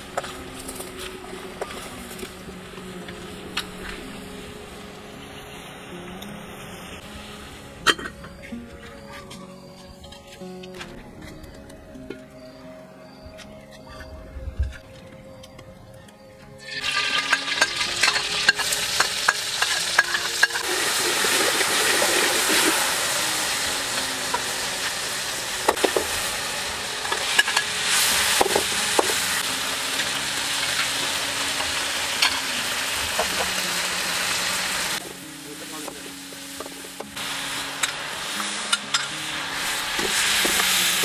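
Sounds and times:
metal ladle scraping pan: 16.6s - 21.9s, 38.6s - 41.0s
food sizzling in hot oil: 16.6s - 41.0s.

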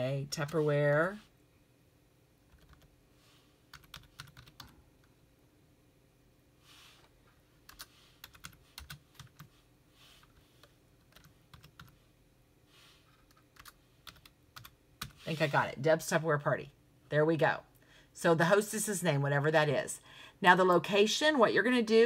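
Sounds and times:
computer keyboard typing: 2.5s - 2.9s, 3.7s - 4.7s, 7.7s - 9.5s, 10.6s - 12.0s, 13.2s - 15.2s.

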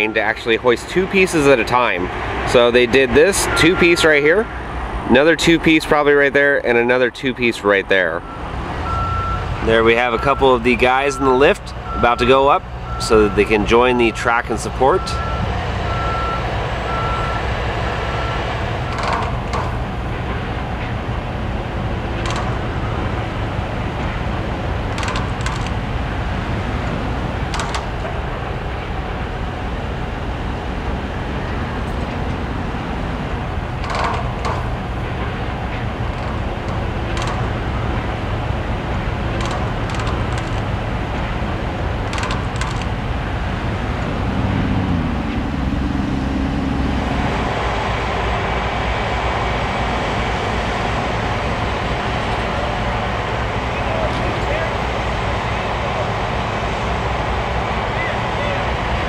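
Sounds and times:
machinery engine rumble: 0.0s - 59.0s
loud machine running: 15.2s - 44.3s
steel knocks: 18.9s - 20.4s, 22.2s - 22.8s, 24.9s - 25.8s, 26.8s - 28.2s, 33.7s - 38.3s, 39.3s - 41.4s, 42.0s - 43.0s.

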